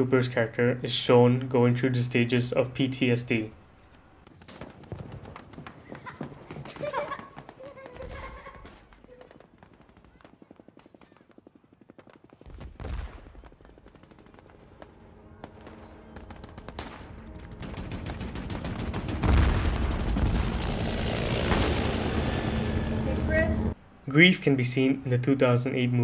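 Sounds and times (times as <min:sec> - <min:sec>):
heavy low boom: 0:14.4 - 0:23.8
low rumble: 0:14.6 - 0:24.1
automatic gunfire: 0:16.2 - 0:22.5.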